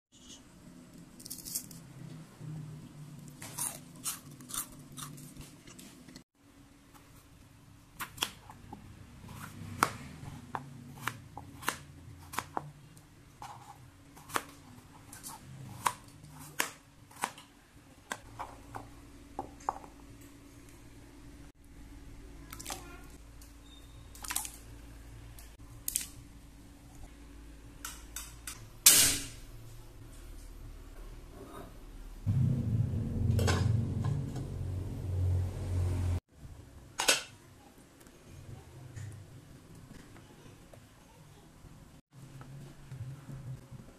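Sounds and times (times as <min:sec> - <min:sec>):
low steady hum: 0:00.2 - 0:36.7
potato snacks crunching: 0:03.4 - 0:05.8
noisy burst: 0:32.3 - 0:36.2.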